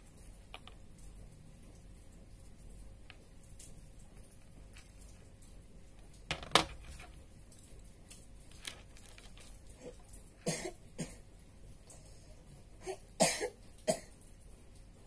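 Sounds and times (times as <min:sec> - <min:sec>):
person coughing: 0:10.4 - 0:11.2, 0:12.8 - 0:14.1.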